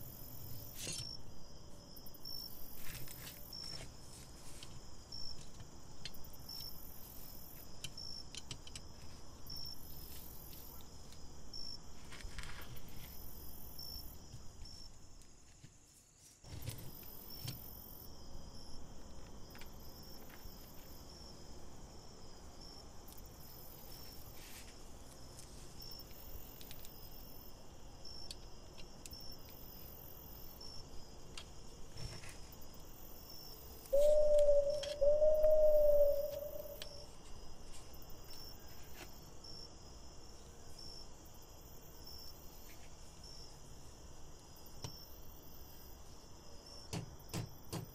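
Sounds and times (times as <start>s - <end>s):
loud wavering steady tone: 33.9s - 37.0s
faint high chirp: 33.9s - 37.1s.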